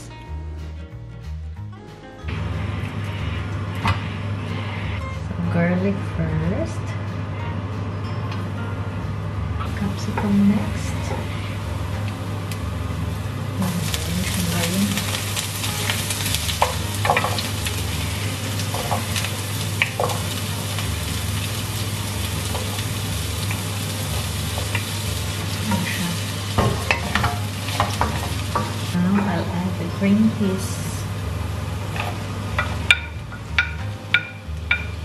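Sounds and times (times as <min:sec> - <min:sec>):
vegetables sizzling in oil: 0:09.7 - 0:35.0.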